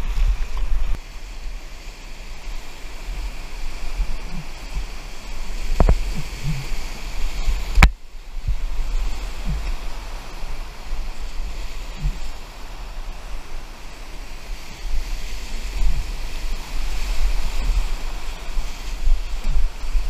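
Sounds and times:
whitewater rapids roaring: 0.0 - 20.0
wind buffeting microphone: 0.0 - 20.0.

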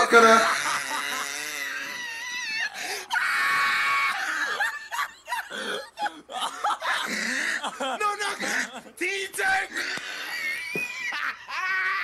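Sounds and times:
person laughing in squeals: 0.0 - 7.1, 10.2 - 12.0.

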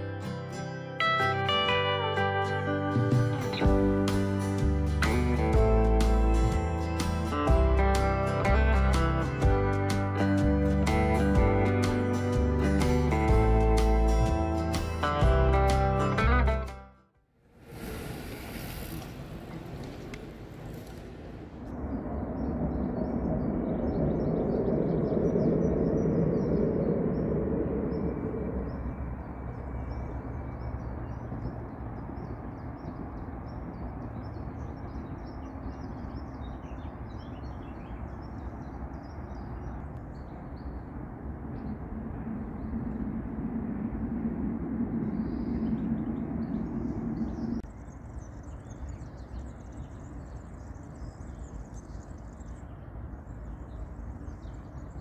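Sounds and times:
low rumble: 17.5 - 34.0, 38.3 - 49.7
small birds chirping: 17.6 - 43.1, 44.9 - 55.0.

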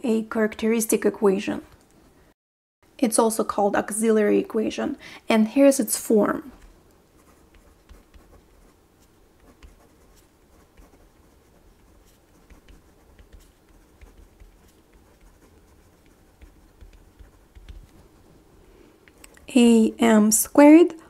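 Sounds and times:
pen scratching on paper: 6.6 - 19.5.

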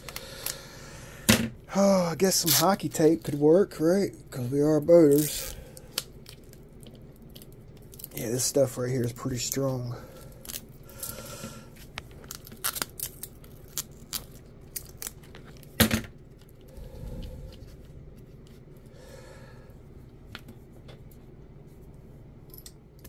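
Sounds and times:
adhesive tape unrolling: 2.3 - 3.4, 12.2 - 15.7.

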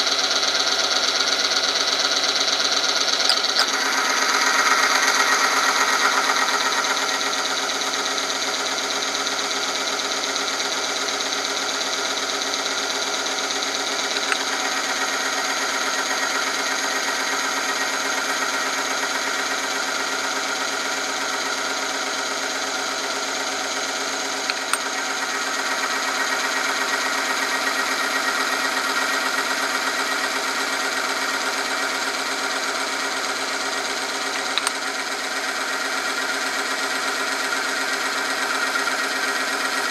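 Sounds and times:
spinning ring grinding whine: 0.0 - 39.9
electric motor humming: 3.1 - 9.5, 12.2 - 19.6, 22.6 - 28.0, 32.0 - 39.9.

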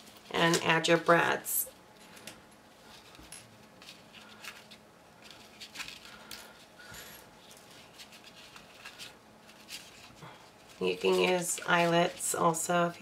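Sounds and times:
paper rustling and light clicks: 2.0 - 6.7, 7.4 - 13.0.

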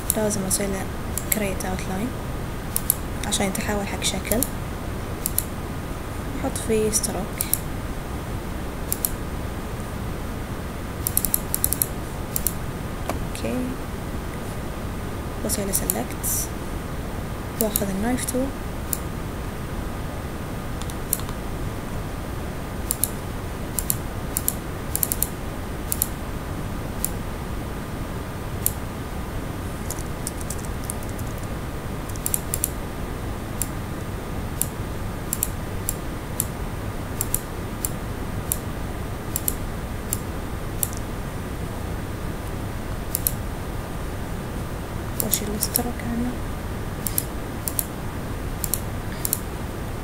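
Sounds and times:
computer mouse clicks: 0.0 - 0.3, 1.2 - 1.5, 2.7 - 3.0, 5.2 - 5.5, 7.4 - 7.7, 8.9 - 9.2, 11.0 - 13.2, 20.8 - 21.4, 22.8 - 23.2, 23.8 - 25.3, 25.9 - 26.2, 28.6 - 28.8, 29.8 - 32.8, 34.6 - 36.5, 37.2 - 38.6, 39.3 - 41.1, 43.1 - 43.4, 47.0 - 47.9, 48.6 - 49.5
keyboard clicks: 0.0 - 0.3, 1.2 - 1.5, 2.8 - 3.4, 5.2 - 5.5, 7.3 - 7.7, 8.9 - 9.2, 11.0 - 13.2, 20.8 - 21.4, 22.8 - 23.2, 23.8 - 25.3, 25.9 - 26.2, 28.6 - 28.8, 29.8 - 32.8, 34.6 - 36.5, 37.2 - 38.6, 39.3 - 41.1, 43.1 - 43.4, 47.0 - 47.9, 48.6 - 49.5
steady background hiss: 0.0 - 50.0.

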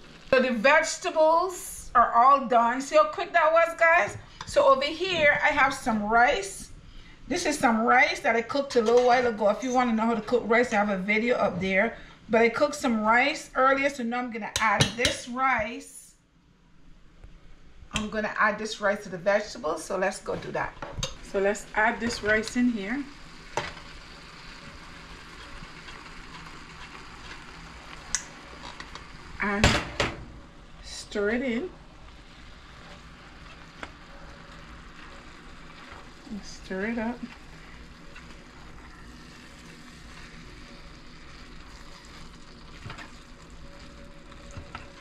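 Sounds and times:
vegetables sizzling in a pan: 0.0 - 1.8, 19.9 - 30.0, 30.6 - 45.0.

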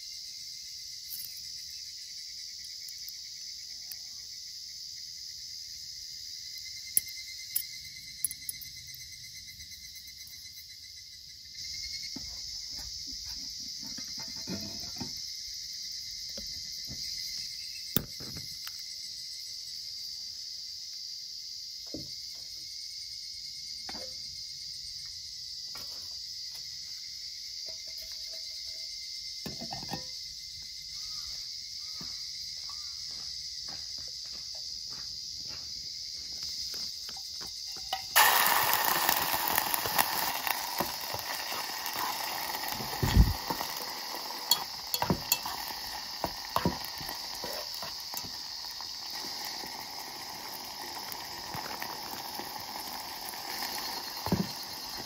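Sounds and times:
insects shrilling: 0.0 - 33.2, 34.3 - 55.0
food sizzling in hot oil: 12.4 - 15.4, 37.6 - 55.0
utensil stirring against a pot: 38.9 - 55.0.

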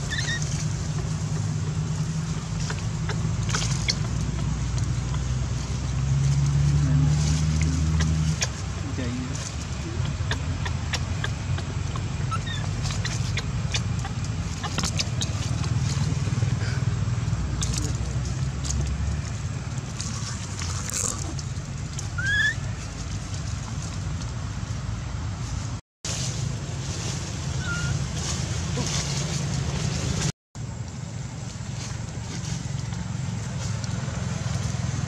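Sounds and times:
rising high squeaks: 0.0 - 1.4, 12.0 - 15.8, 22.1 - 22.8, 27.5 - 28.3
dry leaves and twigs rustling: 0.0 - 35.0
steady low rumble: 0.0 - 35.0.

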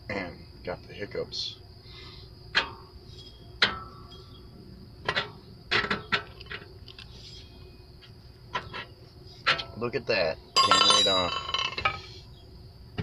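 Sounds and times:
wrench clinking on metal bolt: 10.6 - 12.0.

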